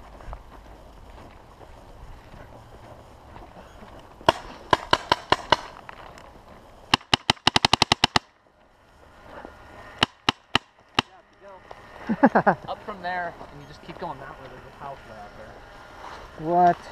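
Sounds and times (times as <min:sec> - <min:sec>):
paintball marker firing: 0:04.2 - 0:05.8, 0:06.9 - 0:08.3, 0:10.0 - 0:11.2.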